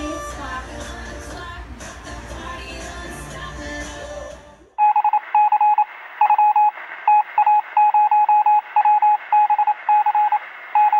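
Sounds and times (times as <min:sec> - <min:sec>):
music: 0:00.0 - 0:04.8
faint radio hiss: 0:00.0 - 0:10.9
morse code beeps: 0:04.8 - 0:10.9.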